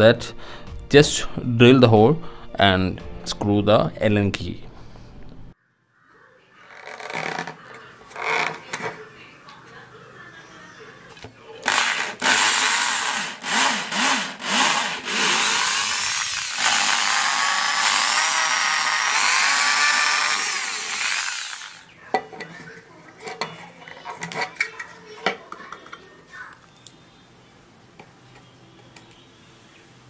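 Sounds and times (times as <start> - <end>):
electric drill boring: 11.6 - 21.8.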